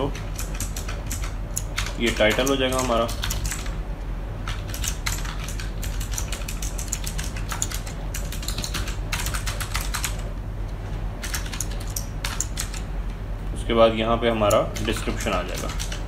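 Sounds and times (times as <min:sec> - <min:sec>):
typing on computer keyboard: 0:00.0 - 0:03.8, 0:04.5 - 0:10.2, 0:11.2 - 0:12.8, 0:14.5 - 0:16.0
low steady hum: 0:00.0 - 0:16.0.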